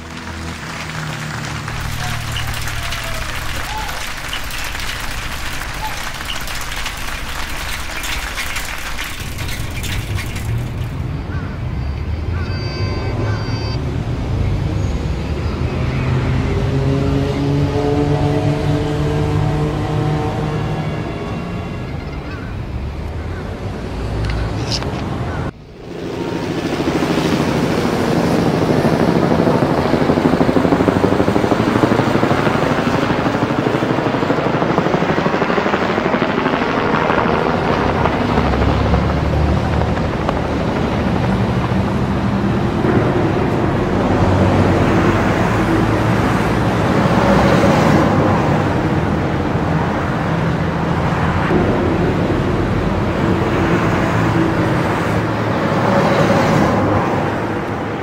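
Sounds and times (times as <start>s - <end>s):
cars driving past: 0.0s - 11.4s, 13.8s - 21.9s, 40.4s - 58.0s.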